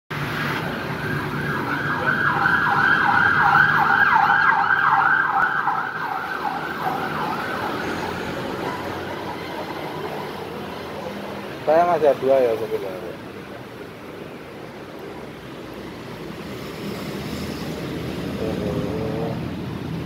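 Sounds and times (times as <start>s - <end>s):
emergency siren yelping: 0.6s - 10.6s.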